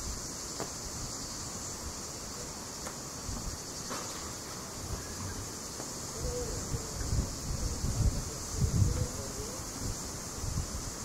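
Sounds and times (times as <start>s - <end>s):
cicadas droning: 0.0s - 11.0s
wind rumble on microphone: 6.1s - 11.0s.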